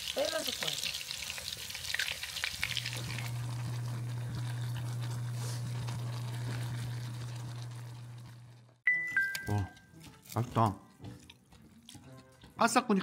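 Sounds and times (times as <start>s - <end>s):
noodles sizzling in pot: 0.0s - 8.7s.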